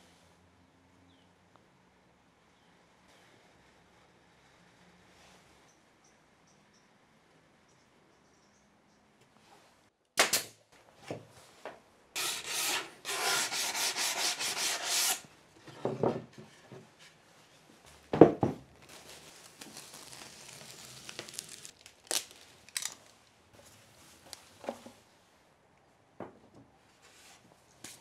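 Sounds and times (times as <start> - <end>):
hand sanding wood: 12.2 - 15.2
plastic wrap rustling: 17.8 - 24.6.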